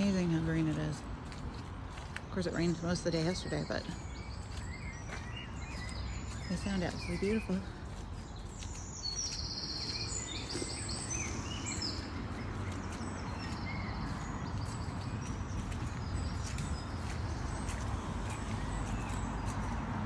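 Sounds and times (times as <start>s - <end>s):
songbirds chirping and singing: 0.0s - 20.0s.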